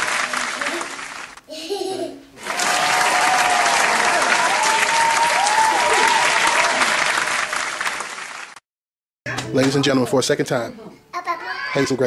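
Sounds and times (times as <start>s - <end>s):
crowd applause: 0.0s - 1.4s, 2.4s - 8.6s
crowd cheering: 0.0s - 1.4s, 2.4s - 8.6s.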